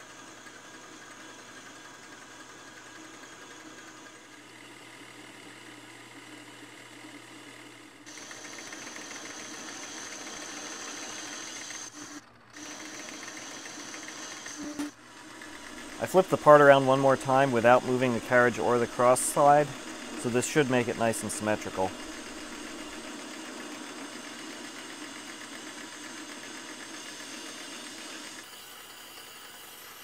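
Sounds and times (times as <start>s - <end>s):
metal lathe cutting: 8.1s - 30.0s.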